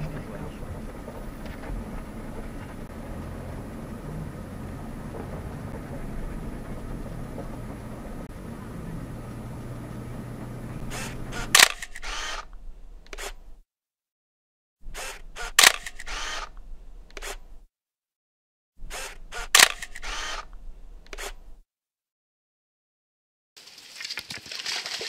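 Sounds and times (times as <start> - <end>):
vehicle engine hum: 0.0 - 13.6, 14.9 - 17.6, 18.8 - 21.6
camera shutter click and whir: 10.8 - 13.6, 14.9 - 17.6, 18.9 - 21.6.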